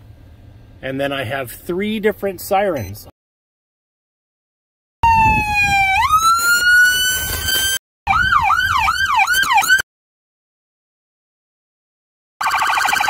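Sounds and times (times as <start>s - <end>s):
electronic siren wail: 5.0s - 9.8s, 12.4s - 13.0s
electronic siren yelp: 5.0s - 9.8s, 12.4s - 13.0s.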